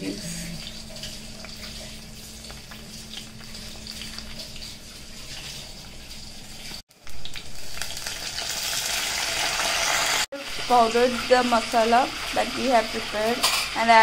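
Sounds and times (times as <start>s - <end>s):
food sizzling in hot oil: 0.0s - 14.0s.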